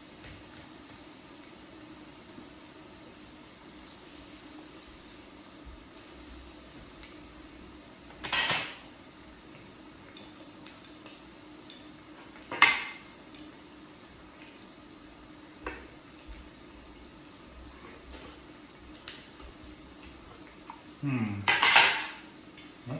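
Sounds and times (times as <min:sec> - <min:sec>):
food sizzling faintly: 0:00.0 - 0:22.9
utensils clattering on metal: 0:08.2 - 0:08.8.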